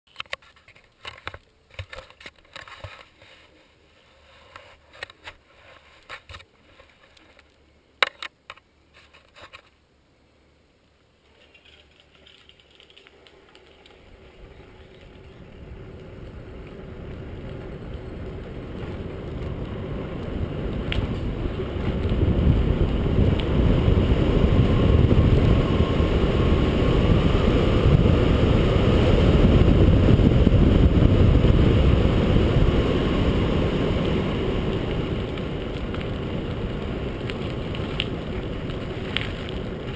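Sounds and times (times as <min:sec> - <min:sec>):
wind and road rush: 0:11.9 - 0:39.9.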